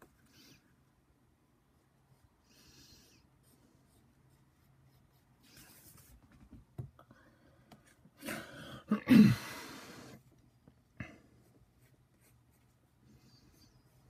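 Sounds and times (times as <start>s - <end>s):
pencil scratching on paper: 3.2s - 6.2s, 11.4s - 14.0s.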